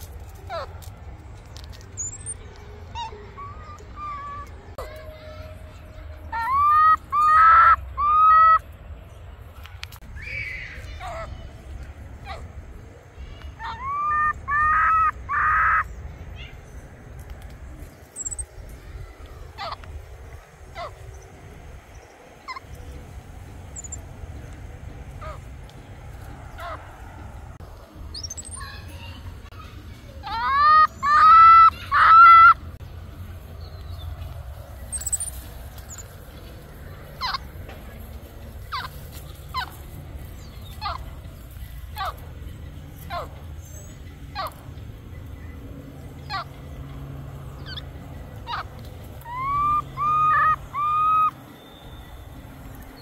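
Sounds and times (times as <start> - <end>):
baby monkey whistle-like calls: 2.0 - 4.8, 6.3 - 8.6, 13.6 - 15.9, 18.2 - 18.5, 23.7 - 24.0, 28.1 - 28.8, 34.9 - 36.1, 48.5 - 52.2.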